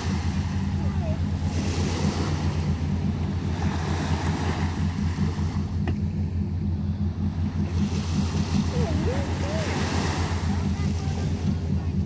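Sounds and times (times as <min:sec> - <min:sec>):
small waves breaking on beach: 0:00.0 - 0:06.0, 0:07.4 - 0:12.0.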